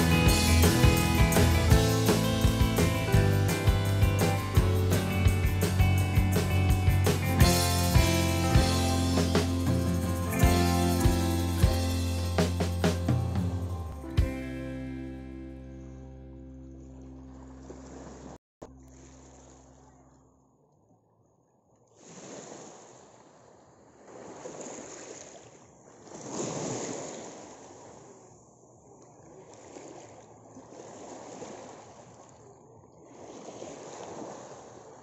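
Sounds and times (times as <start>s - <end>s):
wind: 0.0s - 35.0s
waves washing over pebbles: 24.0s - 28.2s.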